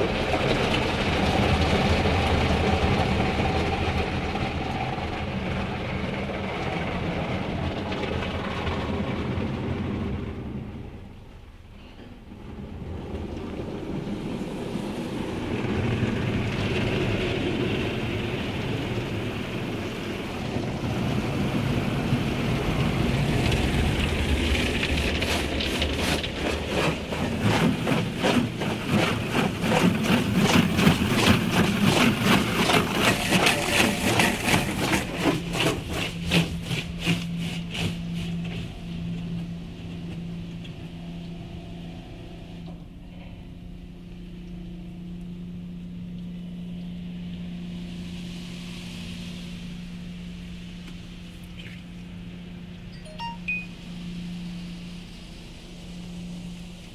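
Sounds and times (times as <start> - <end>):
car wash water spray pulsing: 0.0 - 11.6, 12.3 - 42.3
steady low hum: 0.0 - 56.9.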